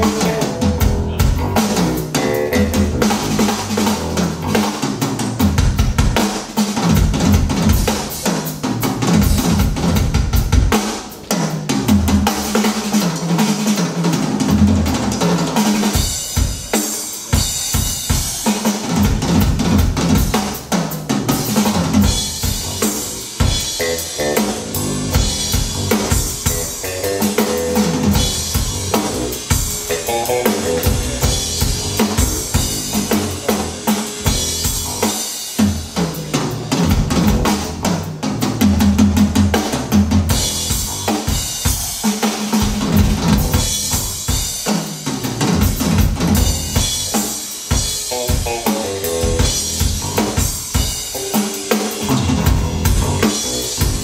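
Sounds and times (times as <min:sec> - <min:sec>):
bass line: 0:00.0 - 0:06.2, 0:06.8 - 0:10.8, 0:17.4 - 0:41.8, 0:42.8 - 0:44.3, 0:45.5 - 0:47.2, 0:47.8 - 0:54.0
drum kit music over loudspeakers: 0:00.0 - 0:54.0.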